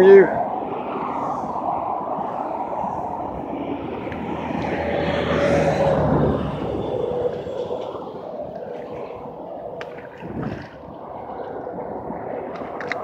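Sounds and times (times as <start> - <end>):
passing vehicle engine: 2.9 - 8.4.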